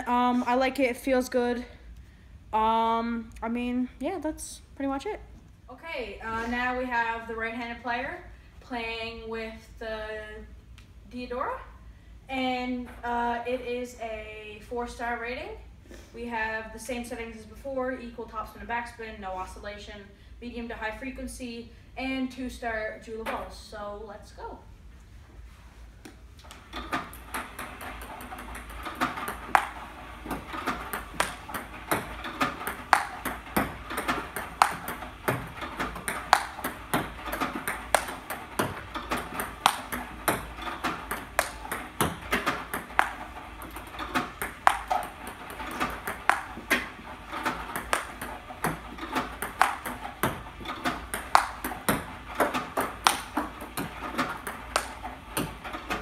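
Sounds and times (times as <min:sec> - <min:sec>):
ping pong balls clicking: 0:26.4 - 0:56.0.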